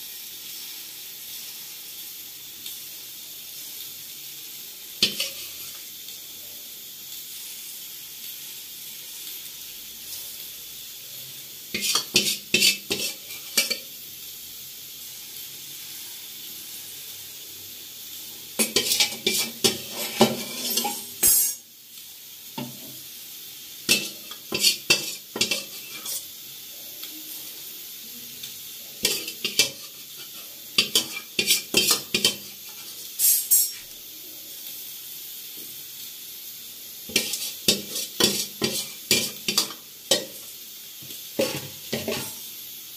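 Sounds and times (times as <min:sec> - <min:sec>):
batter sizzling in a pan: 0:00.0 - 0:42.9
metal utensils scraping a pan: 0:05.0 - 0:05.8, 0:11.7 - 0:13.9, 0:18.6 - 0:21.6, 0:23.9 - 0:26.3, 0:29.0 - 0:33.8, 0:37.1 - 0:40.4, 0:41.4 - 0:42.4.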